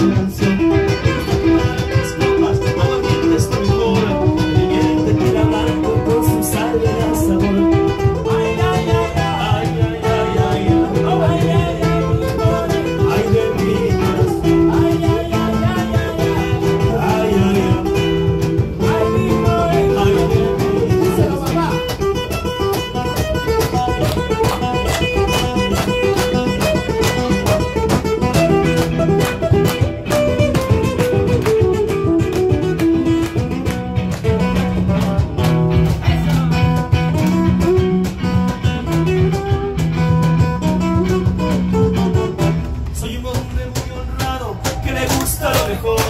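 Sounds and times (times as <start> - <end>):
man singing: 0.0 - 22.2, 34.9 - 37.3, 41.9 - 46.0
acoustic guitar: 0.0 - 46.0
electric guitar: 0.0 - 46.0
people clapping along: 17.9 - 37.4, 44.6 - 46.0.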